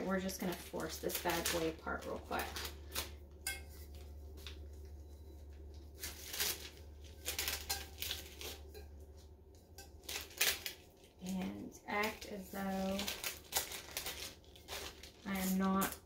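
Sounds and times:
steady low hum: 0.0s - 16.0s
adhesive sheets crinkling apart: 0.2s - 8.8s, 10.0s - 16.0s.

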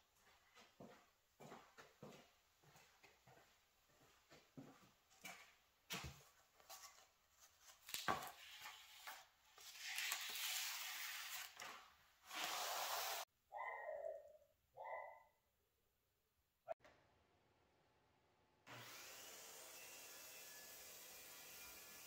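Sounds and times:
paper pages rustling: 6.6s - 12.7s.

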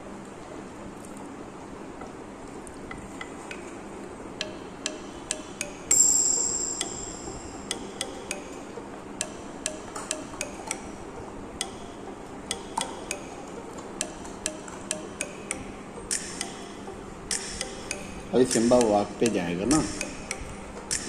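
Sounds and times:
ringing clink: 5.9s - 7.4s.

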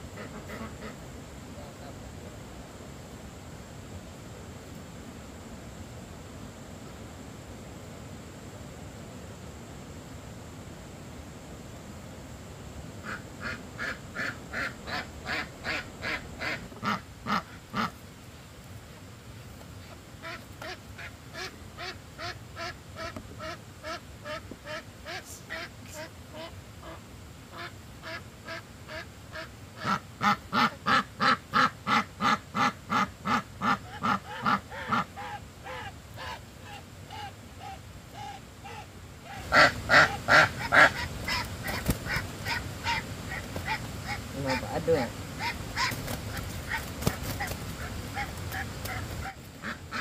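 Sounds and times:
ducks quacking: 0.0s - 1.0s, 13.0s - 18.0s, 20.2s - 50.0s.

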